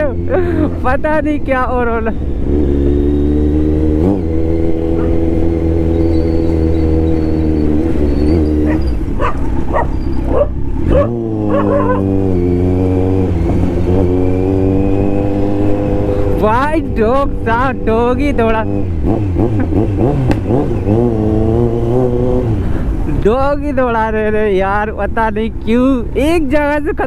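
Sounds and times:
motorcycle engine running: 0.0 - 23.1
dog barking: 8.7 - 12.0.

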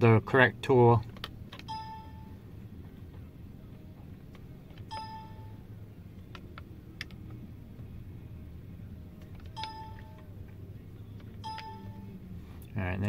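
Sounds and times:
steady low hum: 0.0 - 13.0
electronic dings: 1.6 - 2.4, 4.9 - 5.6, 9.6 - 10.2, 11.4 - 12.2.

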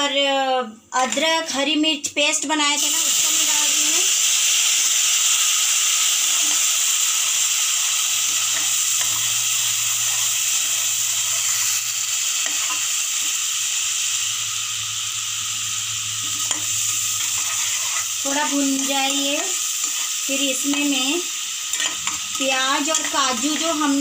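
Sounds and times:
paste sizzling in hot oil: 2.8 - 24.0
spatula scraping pan: 16.3 - 18.1, 19.8 - 20.2.

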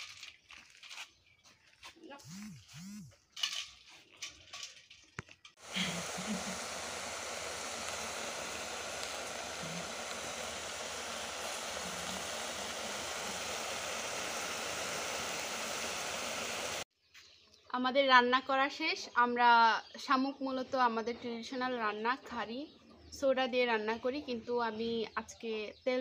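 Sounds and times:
pot hissing on gas burner: 5.6 - 16.9.

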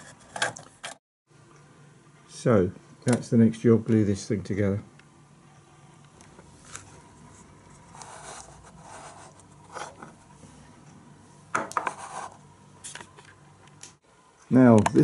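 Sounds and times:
parts scraping and rubbing: 0.0 - 1.0, 6.5 - 10.4.

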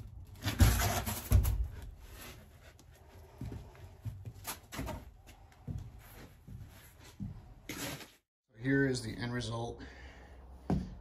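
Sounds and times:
footsteps: 0.6 - 8.2.

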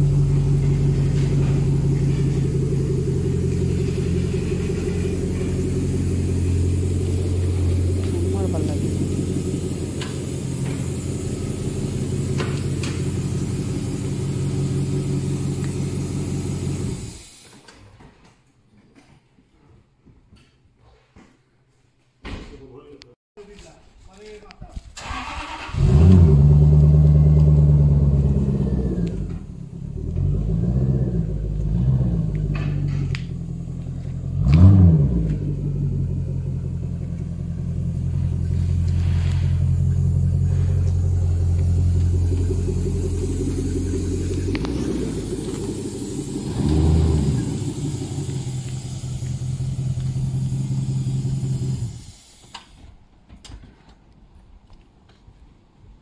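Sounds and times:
car engine revving and idling: 0.0 - 17.3, 25.3 - 52.3.

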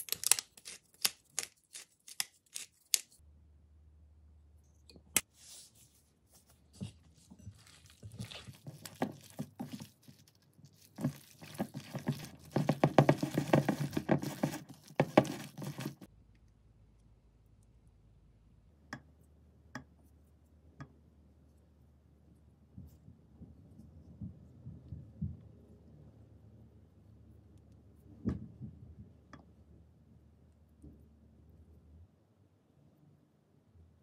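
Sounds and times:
hand squishing wet filling: 6.3 - 16.1.

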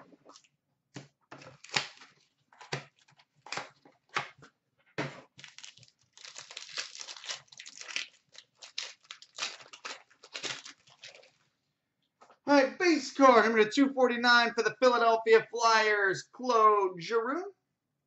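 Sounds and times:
foil wrapper crinkling and tearing: 1.4 - 3.8, 5.3 - 11.5.

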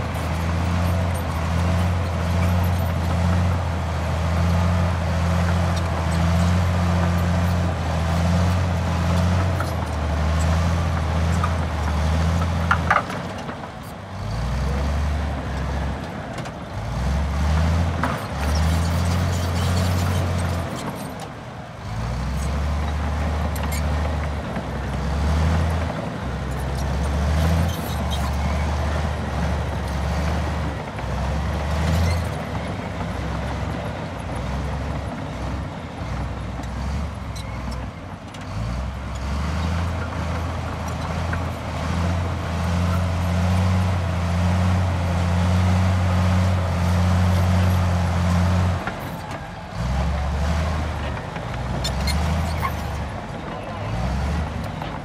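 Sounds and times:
bulldozer diesel engine under load: 0.0 - 55.0.

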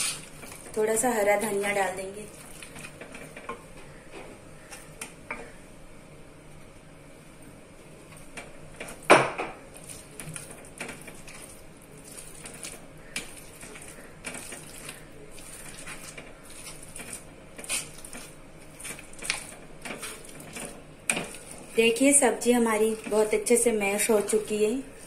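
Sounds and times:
masher squelching vegetables: 0.0 - 4.0, 9.7 - 25.0.

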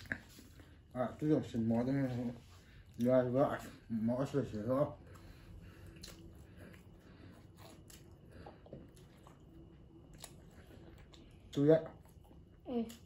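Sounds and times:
faint chewing: 0.0 - 13.0.

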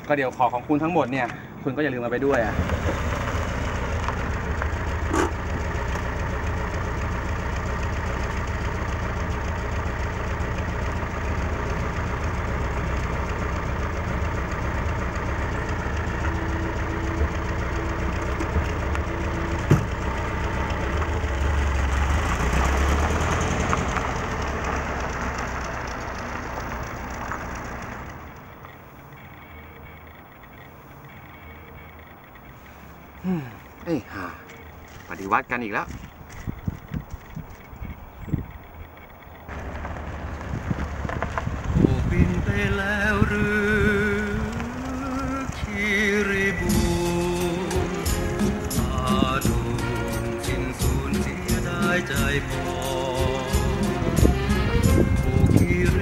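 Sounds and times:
car engine idling: 0.0 - 56.0
car door shutting: 19.6 - 20.0.

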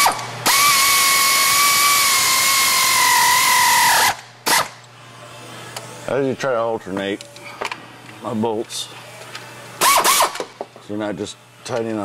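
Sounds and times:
air ratchet whining: 0.0 - 4.8, 9.3 - 10.5.

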